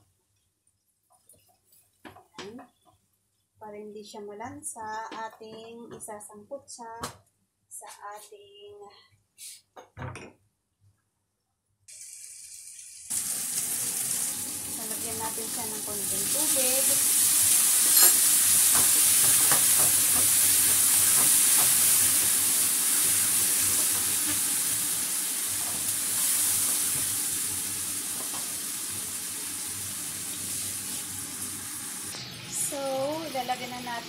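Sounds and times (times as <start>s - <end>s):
chicken wings sizzling in a pan: 11.9s - 34.0s.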